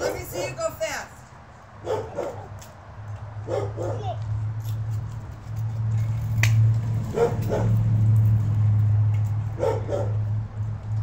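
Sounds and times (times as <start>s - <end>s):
dog barking: 0.0s - 0.6s, 1.8s - 2.6s, 3.4s - 4.2s, 7.1s - 7.8s, 9.6s - 10.3s.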